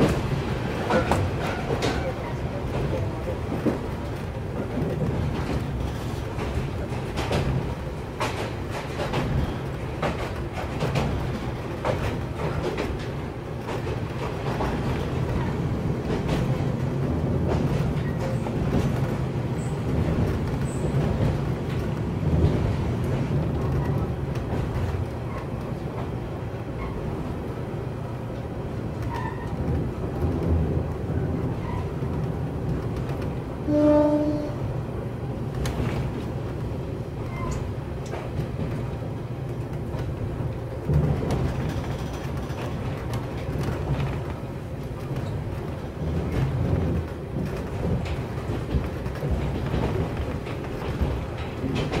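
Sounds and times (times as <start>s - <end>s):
train wheels on rails: 0.0s - 52.0s
short horn blast: 33.7s - 34.6s.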